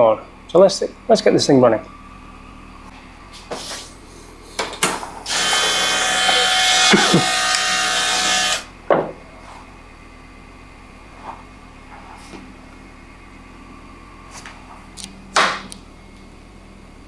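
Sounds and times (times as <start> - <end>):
whirring hiss with whining tones: 0.0 - 8.7.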